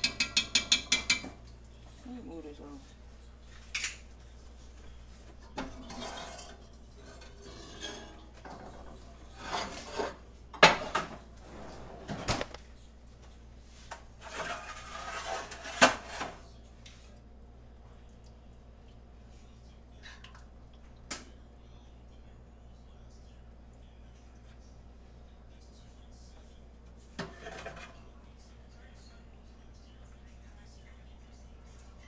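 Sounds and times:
spoon clinking against pot: 0:00.0 - 0:01.4
metal spoon scraping a pot: 0:05.6 - 0:10.2, 0:14.2 - 0:16.4, 0:27.2 - 0:28.1.

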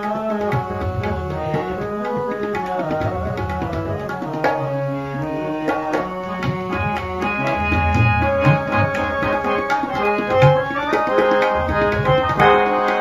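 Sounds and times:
harmonium melody: 0:00.0 - 0:13.0
tabla drumming: 0:00.0 - 0:13.0.

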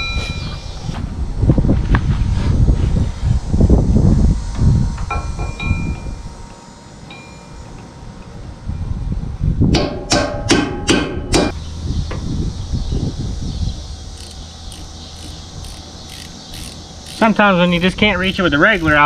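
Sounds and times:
faint high ticking: 0:14.2 - 0:17.8.

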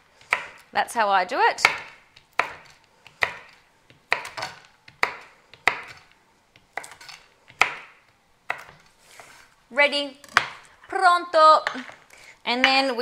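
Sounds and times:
knife chopping on wooden board: 0:00.2 - 0:00.7, 0:01.6 - 0:09.4, 0:10.3 - 0:10.6.

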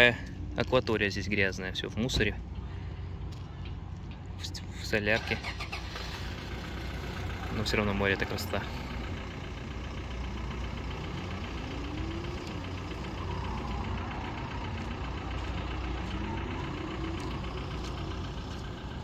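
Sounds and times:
motorboat engine idling: 0:06.1 - 0:19.0.

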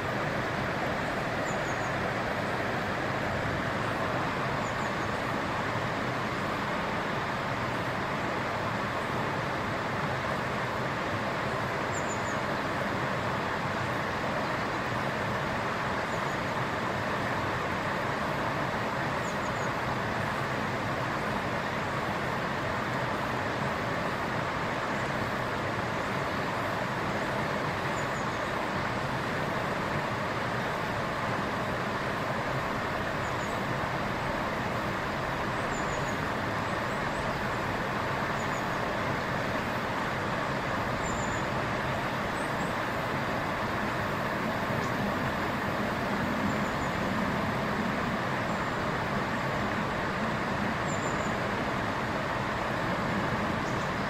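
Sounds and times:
stream water rushing: 0:00.0 - 0:54.0
faint bird chirps: 0:01.4 - 0:02.0, 0:04.6 - 0:05.2, 0:11.9 - 0:12.5, 0:33.2 - 0:33.7, 0:35.5 - 0:37.6, 0:38.2 - 0:39.4, 0:41.0 - 0:41.6, 0:46.4 - 0:47.0, 0:50.8 - 0:51.4.

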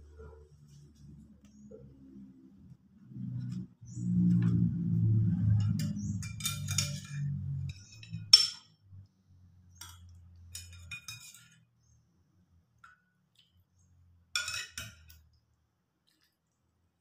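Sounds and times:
low hum: 0:00.0 - 0:10.3
metal spoon clinking on ceramic: 0:05.6 - 0:08.7, 0:09.8 - 0:11.5, 0:14.4 - 0:15.2.

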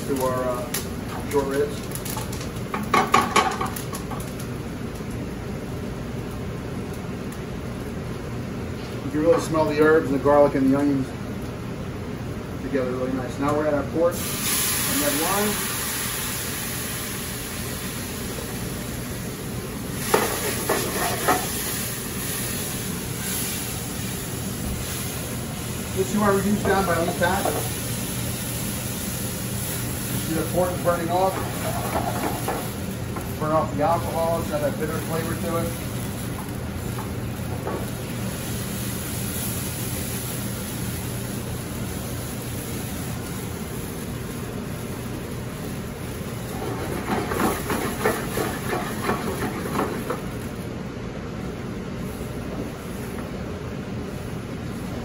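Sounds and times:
wine sizzling in a pan: 0:00.0 - 0:05.1, 0:14.1 - 0:50.7.

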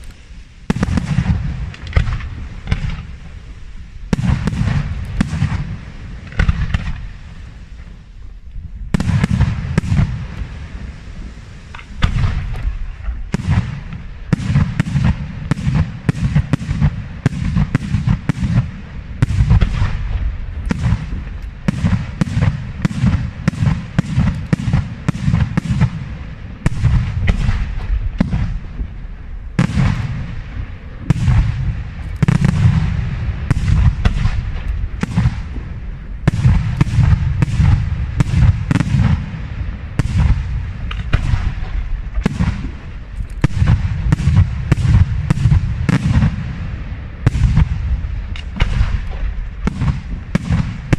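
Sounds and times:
deep rumble: 0:25.9 - 0:50.9.

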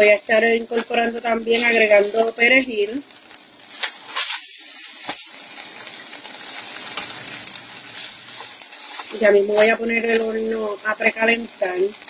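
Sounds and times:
butter sizzling in frying pan: 0:00.0 - 0:12.0
spatula scraping pan: 0:01.4 - 0:02.5, 0:03.7 - 0:10.7.

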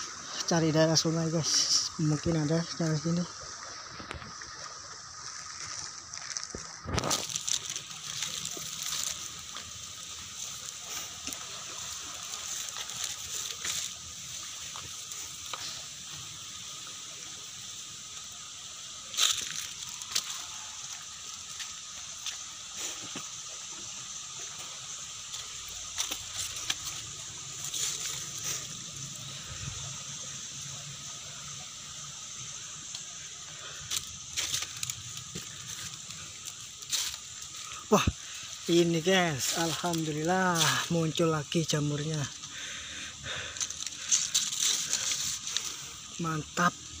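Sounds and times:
river flowing: 0:00.0 - 0:47.0
footsteps clicking and rustling: 0:25.4 - 0:28.5.

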